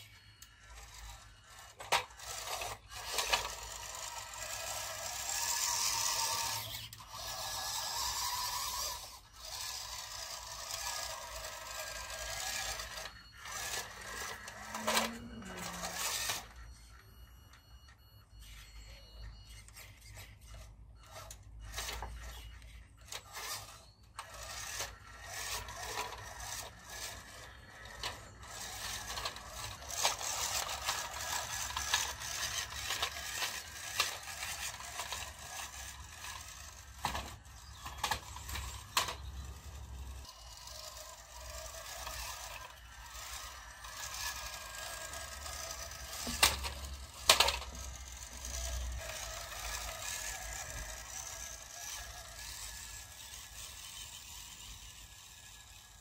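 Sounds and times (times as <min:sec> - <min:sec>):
rc truck motor whining: 0:00.0 - 0:56.0.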